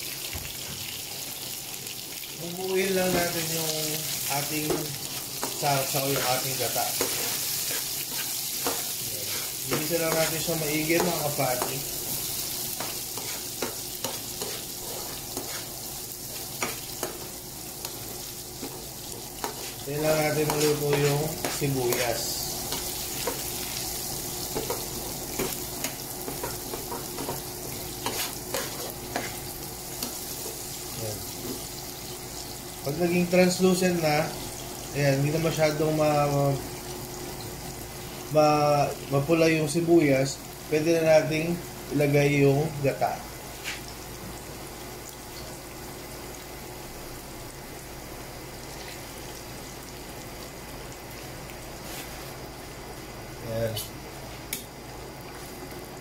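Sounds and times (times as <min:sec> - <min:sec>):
onion sizzling in oil: 0:00.0 - 0:56.0
metal spoon scraping a pan: 0:12.8 - 0:15.7, 0:28.0 - 0:29.4.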